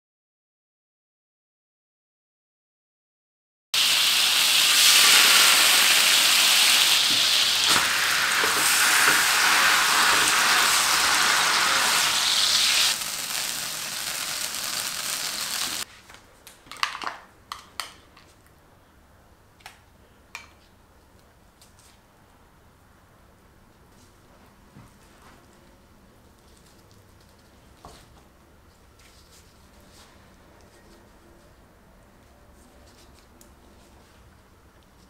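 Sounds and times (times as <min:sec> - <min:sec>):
sauce sizzling in frying pan: 0:03.8 - 0:15.9.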